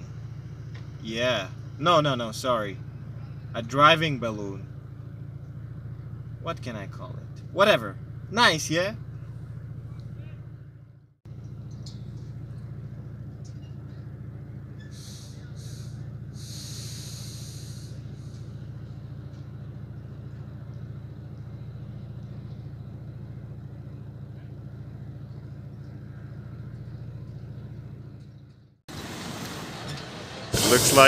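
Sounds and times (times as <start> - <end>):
engine idling: 0.0 - 31.0
short hisses: 14.9 - 18.5, 30.6 - 31.0.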